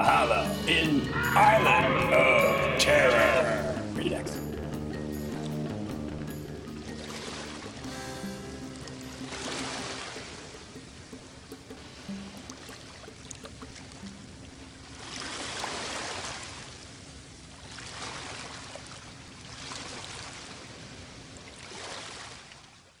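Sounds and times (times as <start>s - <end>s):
ocean waves washing in: 6.8s - 22.5s.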